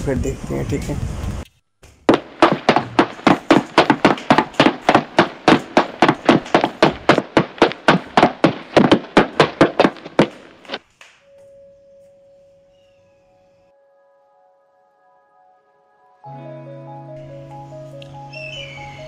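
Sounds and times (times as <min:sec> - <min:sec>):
footsteps on tiled floor: 0:01.9 - 0:11.0.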